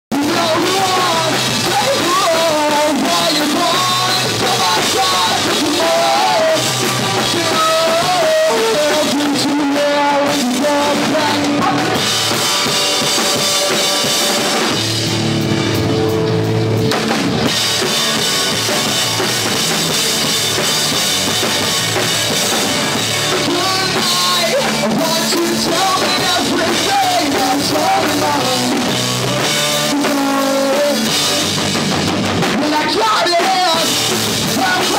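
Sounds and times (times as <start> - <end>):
person singing: 0.1 - 13.8, 23.0 - 31.4, 32.5 - 34.9
bass guitar: 0.1 - 34.9
drum kit: 0.1 - 34.9
electric guitars: 0.1 - 34.9.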